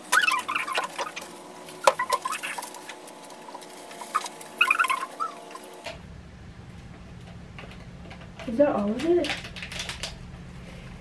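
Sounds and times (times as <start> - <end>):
gloved hands squeaking on plastic: 0.0 - 5.8
steady low hum: 0.0 - 11.0.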